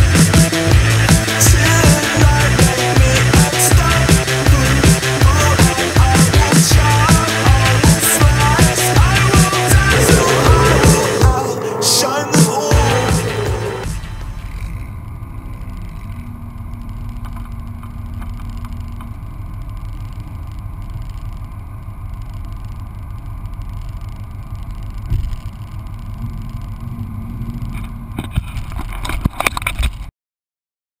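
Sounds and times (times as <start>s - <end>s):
steady low rumble: 6.7s - 28.8s.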